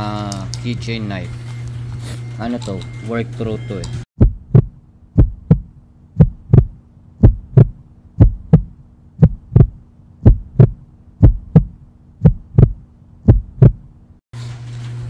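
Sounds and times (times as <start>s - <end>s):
heartbeat thumps: 4.2s - 13.9s.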